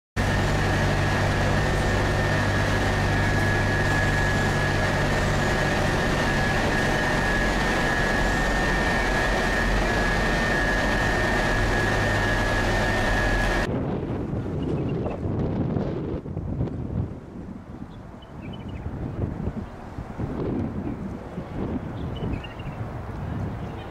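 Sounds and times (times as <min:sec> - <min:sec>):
vehicle engine and road noise: 0:00.2 - 0:14.8
steady high whine: 0:00.2 - 0:23.2.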